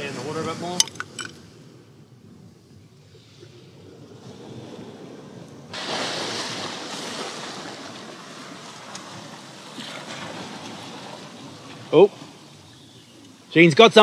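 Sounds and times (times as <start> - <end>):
wind: 0.0 - 14.0
sea washing against rocks: 3.9 - 12.7.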